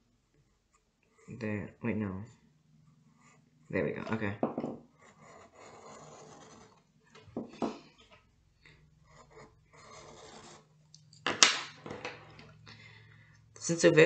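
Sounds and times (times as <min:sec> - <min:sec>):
pencil scratching on paper: 0:03.1 - 0:04.2, 0:04.9 - 0:06.9, 0:09.0 - 0:10.7.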